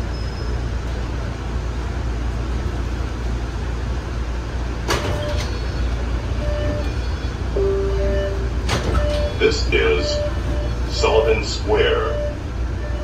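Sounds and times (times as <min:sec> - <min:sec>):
subway car rumble: 0:00.0 - 0:13.0
train doors opening clunk: 0:04.8 - 0:12.1.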